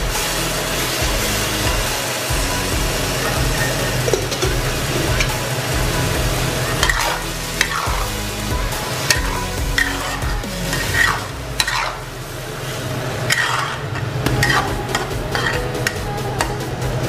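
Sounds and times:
vegetables sizzling in a wok: 0.0s - 17.0s
metal spatula stirring: 3.1s - 12.0s, 12.6s - 16.6s.

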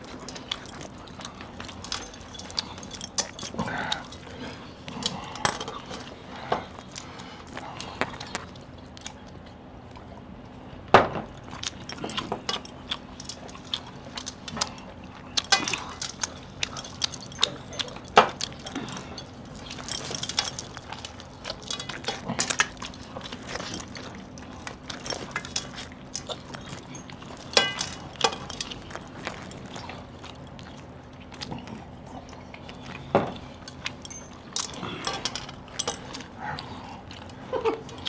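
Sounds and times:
chewing food: 0.0s - 38.0s
metal rings clinking on plates: 15.2s - 30.6s, 33.0s - 36.4s.

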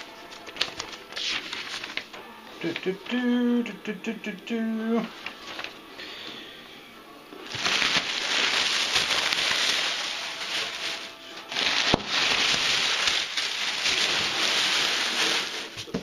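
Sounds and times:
plastic packing crinkling: 0.2s - 3.2s, 5.1s - 5.8s, 7.4s - 16.0s.

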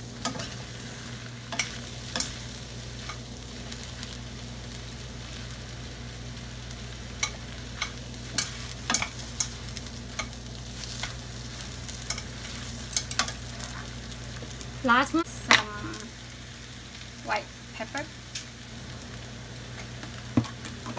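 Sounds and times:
noodles sizzling in skillet: 0.0s - 20.9s
utensils clicking and scraping pan: 0.2s - 0.8s, 1.5s - 3.3s, 7.1s - 13.9s.

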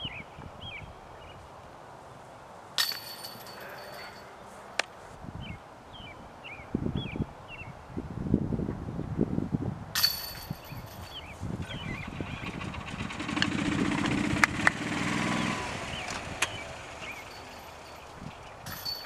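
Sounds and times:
bird chirping: 0.0s - 1.4s, 5.4s - 7.8s, 10.7s - 12.7s, 15.3s - 18.7s
disc hitting metal chains: 2.8s - 4.3s, 10.0s - 11.3s, 16.9s - 19.0s.

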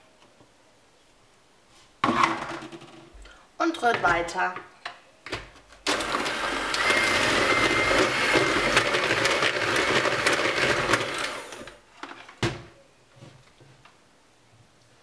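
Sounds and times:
electric hand mixer running: 5.9s - 11.8s.

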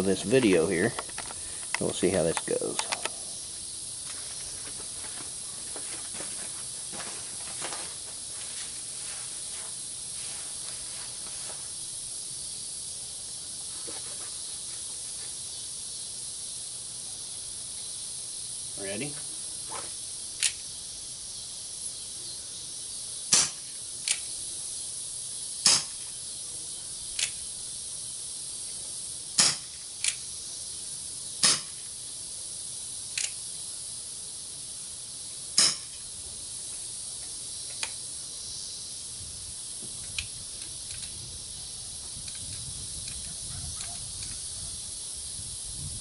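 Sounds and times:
steady high hiss: 0.0s - 46.0s
revolver clicks: 0.4s - 3.2s
air pistol shots popping: 23.3s - 24.2s, 25.6s - 26.0s, 29.4s - 29.8s, 31.4s - 31.8s, 35.6s - 35.9s.

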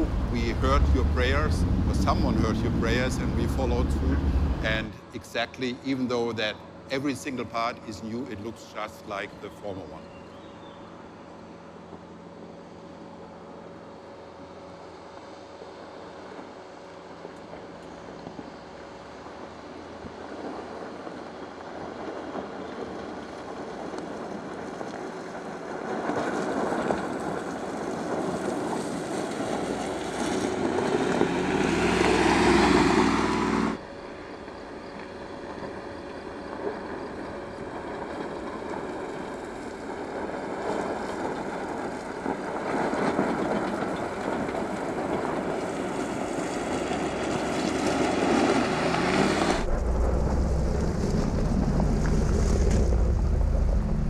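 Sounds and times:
car engine driving: 0.0s - 5.4s, 28.4s - 33.8s, 42.8s - 54.0s
tyres on gravel: 0.0s - 12.1s, 19.2s - 54.0s.

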